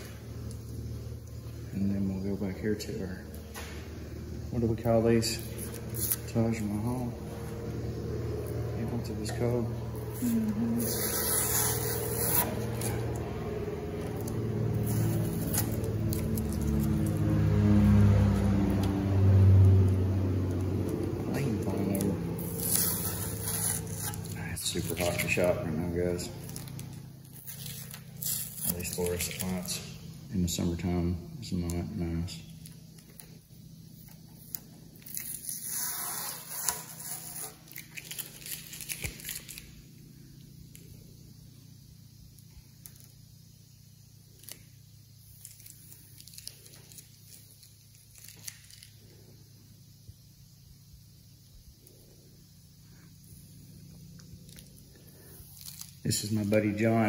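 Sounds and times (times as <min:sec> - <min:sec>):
low mechanical hum: 0:00.0 - 0:57.0
masking tape peeling: 0:04.5 - 0:30.8, 0:32.6 - 0:40.8, 0:44.2 - 0:49.1, 0:54.2 - 0:57.0
airbrush hissing: 0:10.2 - 0:13.1.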